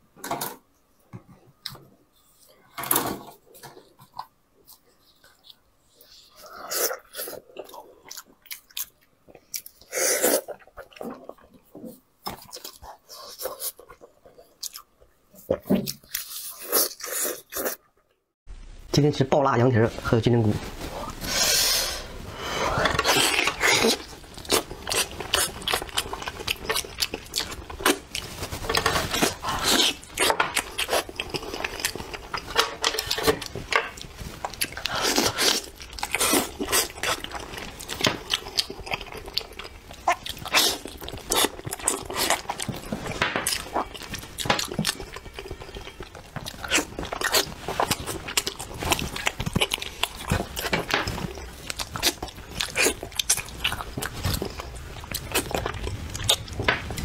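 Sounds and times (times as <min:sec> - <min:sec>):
person chewing and smacking: 0:03.4 - 0:17.8, 0:22.8 - 0:57.0
crunching clicks of chewing: 0:28.8 - 0:57.0.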